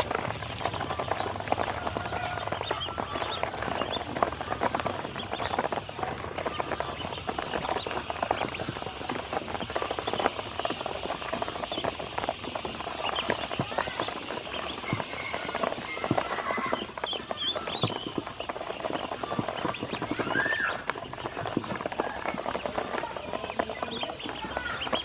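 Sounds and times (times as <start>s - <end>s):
bills tapping plastic: 0.0s - 25.0s
duckling peeps: 0.0s - 25.0s.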